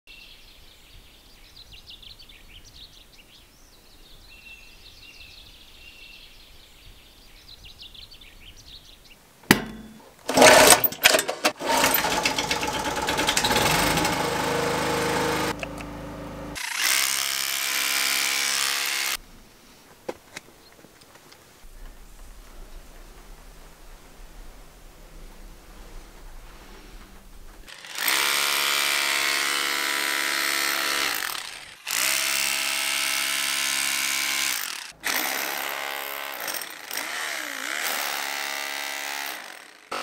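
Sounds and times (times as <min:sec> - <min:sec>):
portable generator running: 0:09.5 - 0:17.2
electric hammer chiselling concrete: 0:10.3 - 0:15.8, 0:16.5 - 0:19.2, 0:27.7 - 0:40.0.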